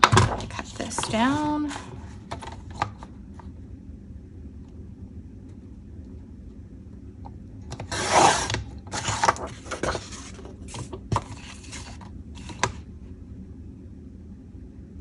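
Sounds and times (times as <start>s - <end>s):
paper rustling and scraping: 7.8s - 12.7s.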